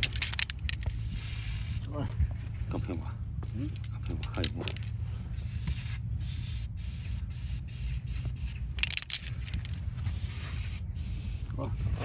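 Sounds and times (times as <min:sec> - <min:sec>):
aerosol spray hissing in bursts: 0:00.9 - 0:01.8, 0:05.4 - 0:08.7, 0:10.0 - 0:11.5.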